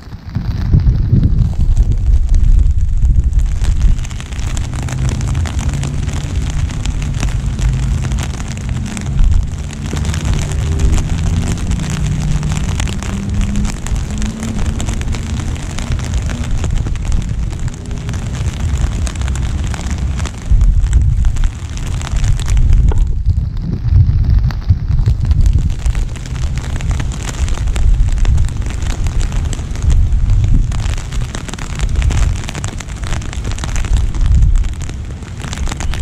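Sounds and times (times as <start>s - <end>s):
low rumble: 0.0s - 36.0s
rain pattering on umbrella: 0.0s - 36.0s.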